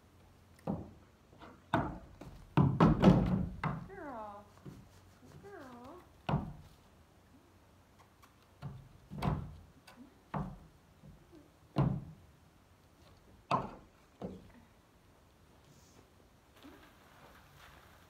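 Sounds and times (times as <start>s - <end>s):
hooves knocking on wooden ramp: 0.6s - 3.9s, 6.0s - 6.8s, 8.6s - 12.3s, 13.0s - 14.5s.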